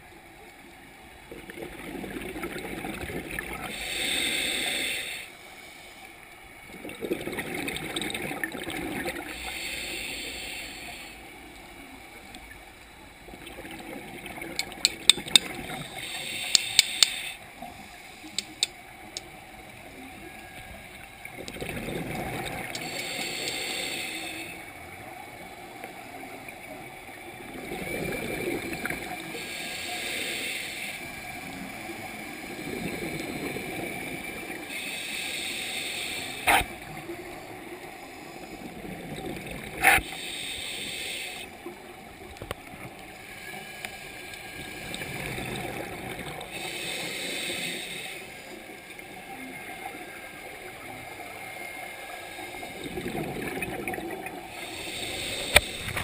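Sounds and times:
exhaled bubbles gurgling: 1.2s - 4.4s, 6.6s - 9.6s, 13.2s - 16.8s, 20.3s - 22.9s, 26.6s - 29.5s, 31.4s - 34.8s, 36.4s - 40.3s, 44.6s - 56.0s
regulator inhalation hiss: 3.7s - 6.1s, 9.3s - 11.3s, 15.8s - 18.7s, 22.7s - 24.6s, 29.2s - 31.7s, 34.6s - 36.6s, 39.8s - 41.6s, 46.5s - 48.8s, 54.5s - 56.0s
sharp clicks: 16.4s - 17.2s, 18.3s - 19.3s.

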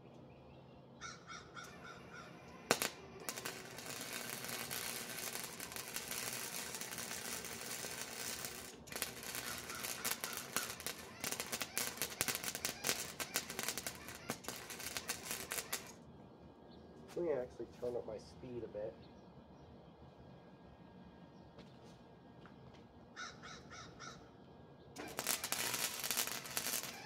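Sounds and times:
welder arc hissing and crackling: 2.2s - 16.0s, 25.0s - 27.0s.

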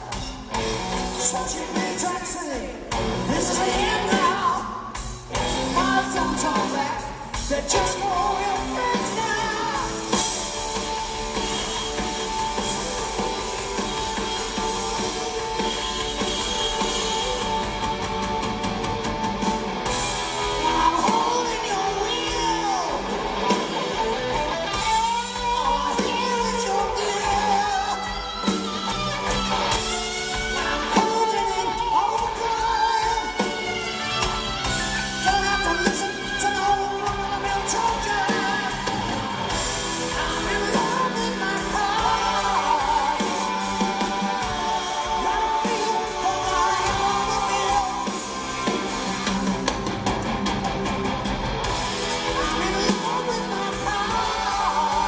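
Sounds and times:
man singing: 0.0s - 10.4s, 20.3s - 28.5s, 29.8s - 39.3s, 39.9s - 49.3s, 52.1s - 55.0s
electric guitar lead: 0.0s - 55.0s
live rock band playing: 0.0s - 55.0s.

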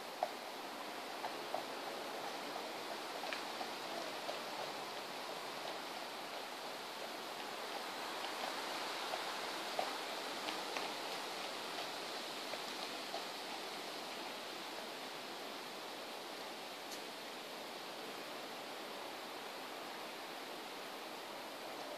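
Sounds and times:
rushing outdoor background noise: 0.0s - 21.9s
faint light ticks: 1.2s - 6.5s, 16.8s - 17.1s.

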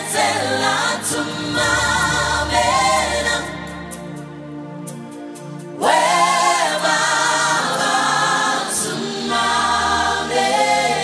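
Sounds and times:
gospel choir singing: 0.0s - 5.0s, 5.6s - 11.0s.

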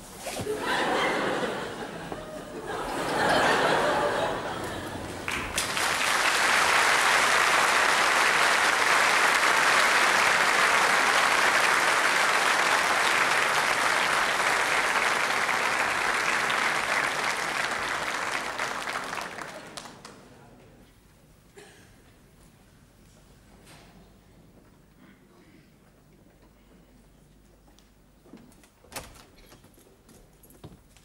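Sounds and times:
audience applauding: 0.6s - 20.2s.

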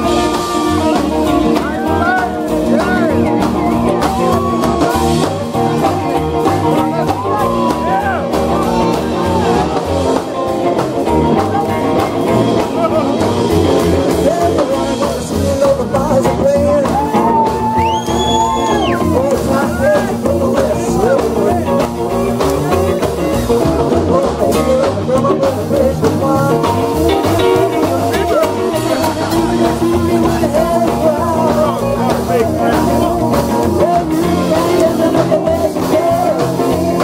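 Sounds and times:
man singing into microphone: 0.0s - 10.4s, 11.0s - 37.0s
rock and roll band playing: 0.0s - 37.0s.

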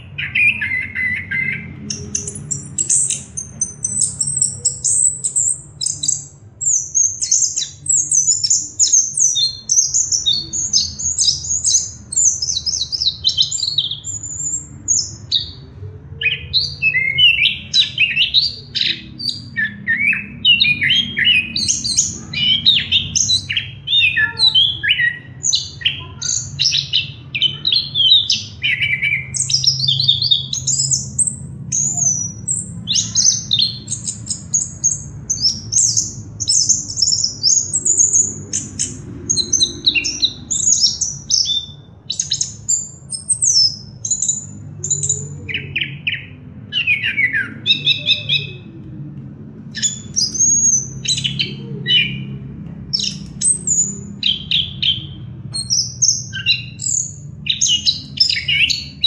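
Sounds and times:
low steady hum: 48.4s - 59.0s.

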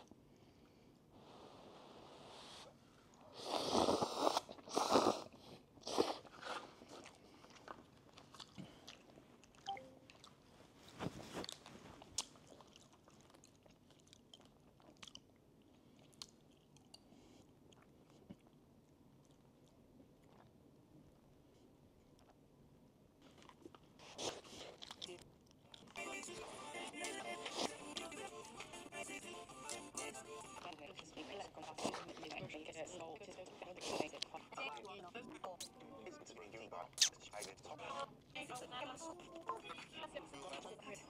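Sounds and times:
person slurping noodles: 3.3s - 6.7s, 26.4s - 28.7s
chewing with small clicks: 6.8s - 10.4s, 11.4s - 22.5s, 23.2s - 26.0s.

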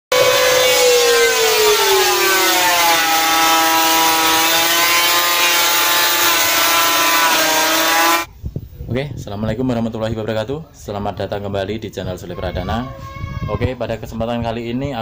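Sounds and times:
electric planer motor whine: 0.1s - 8.3s
planer hiss: 0.1s - 8.3s.

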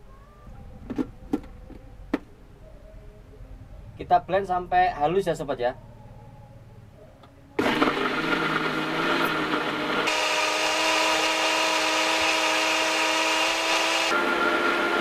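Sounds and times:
blender grinding: 7.6s - 15.0s.

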